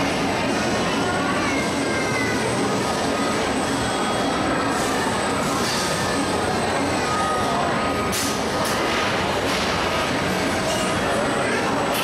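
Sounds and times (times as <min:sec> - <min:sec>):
mechanical hum and hiss: 0:00.0 - 0:12.0.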